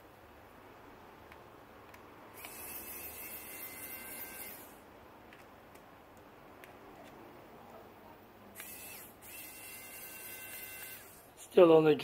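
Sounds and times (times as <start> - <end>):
electric screwdriver whine: 2.4 - 4.8, 8.6 - 11.3.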